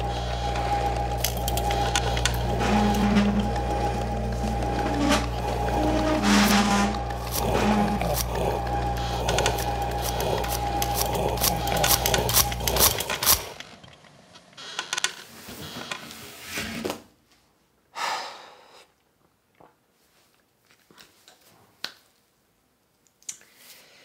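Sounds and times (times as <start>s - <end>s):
electric fan running: 0.0s - 14.0s.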